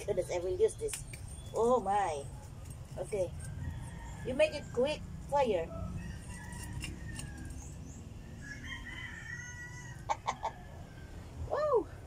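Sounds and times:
rooster crowing: 3.4s - 4.7s, 5.7s - 11.3s.

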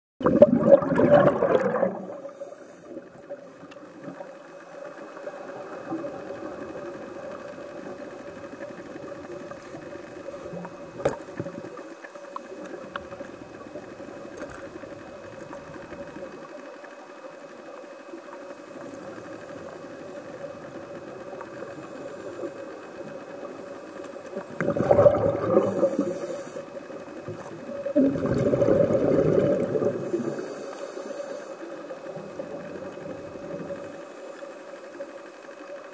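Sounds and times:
diver exhaling bubbles: 0.2s - 2.3s, 24.4s - 26.6s, 27.8s - 30.4s
faint constant hum: 0.3s - 35.9s
steady low hiss: 1.6s - 35.9s.

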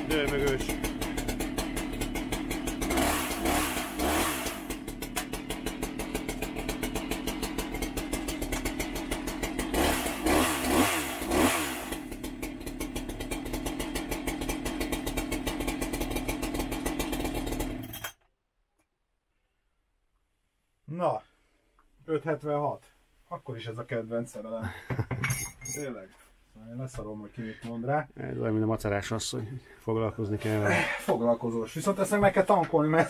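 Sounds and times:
chainsaw idling and revving: 0.0s - 18.0s.

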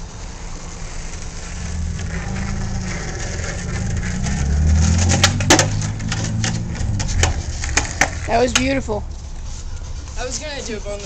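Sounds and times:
skateboard wheels rolling on asphalt: 0.0s - 11.0s
skateboard clacking on a curb: 0.4s - 9.0s.

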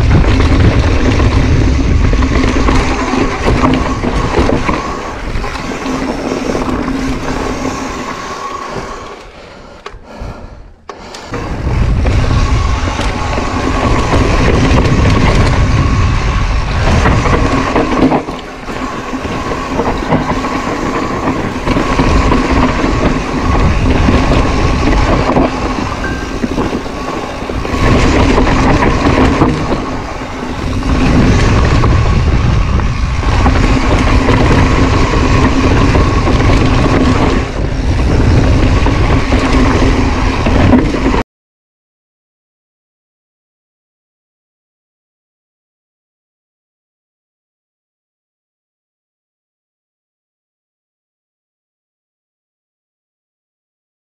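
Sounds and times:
tyres rumbling on dirt: 0.0s - 9.2s, 11.3s - 41.2s
wind rushing over microphone: 0.0s - 9.2s, 11.3s - 41.2s.

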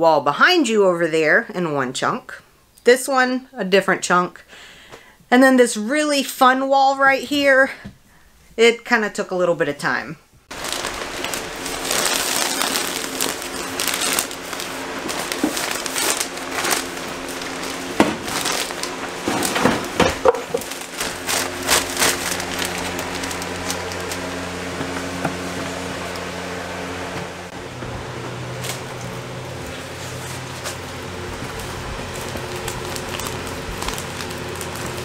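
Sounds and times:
insulation paper crinkling: 10.5s - 26.6s, 28.5s - 35.0s.

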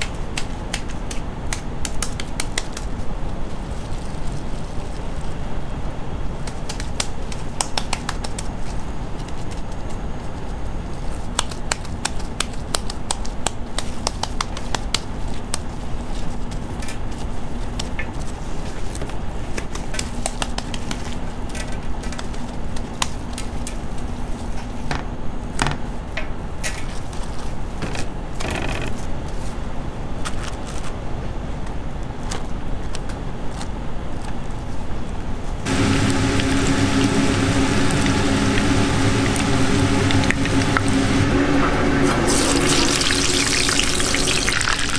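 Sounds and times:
hands patting raw meat: 0.0s - 4.8s, 6.4s - 10.0s, 11.2s - 21.2s, 35.7s - 41.2s
low steady rumble: 35.6s - 44.9s
meat patty sizzling in oil: 35.7s - 44.9s.

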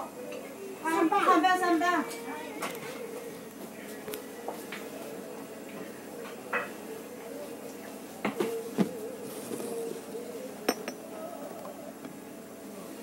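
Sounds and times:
murmur of voices: 0.0s - 13.0s
dishes and glasses clinking: 10.7s - 11.1s.

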